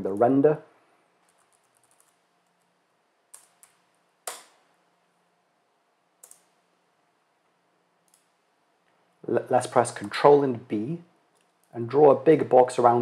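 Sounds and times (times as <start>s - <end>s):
computer keyboard keystrokes: 1.2s - 2.2s, 6.2s - 6.5s.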